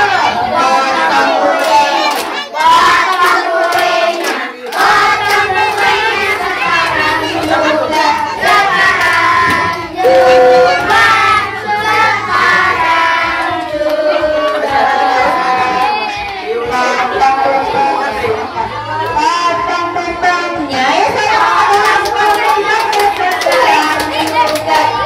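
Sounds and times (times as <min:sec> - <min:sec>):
group of people singing: 0:00.0 - 0:25.0
hand clapping: 0:21.7 - 0:24.9.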